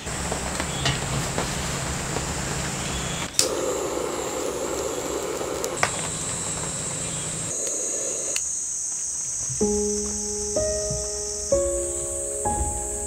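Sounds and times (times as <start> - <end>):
rain rushing: 0.0 - 8.4
torch lighter hissing: 1.7 - 8.9.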